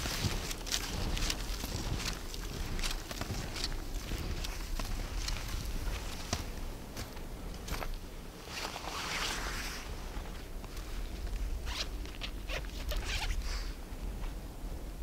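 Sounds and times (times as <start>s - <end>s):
backpack zipper being pulled: 11.7s - 11.9s, 12.5s - 13.4s.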